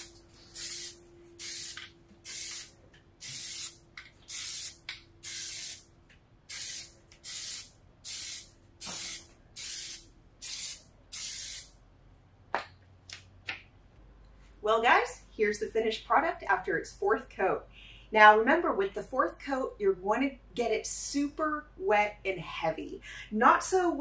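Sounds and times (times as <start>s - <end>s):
aerosol can spraying: 0.0s - 5.8s, 6.5s - 11.7s.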